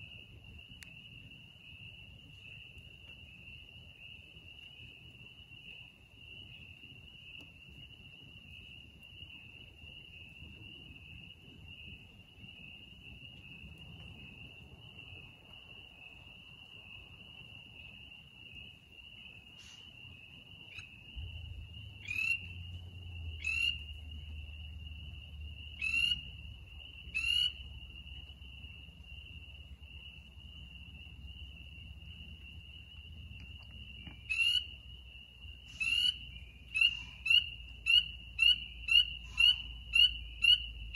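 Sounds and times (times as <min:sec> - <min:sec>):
frogs or insects trilling: 0:08.3 - 0:40.9.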